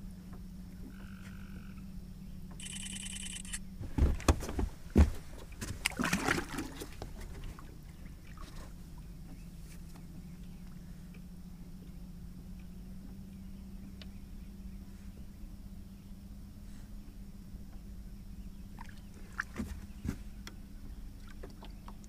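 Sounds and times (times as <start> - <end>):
steady low hum: 0.0 - 22.0
water splashing: 5.5 - 8.7.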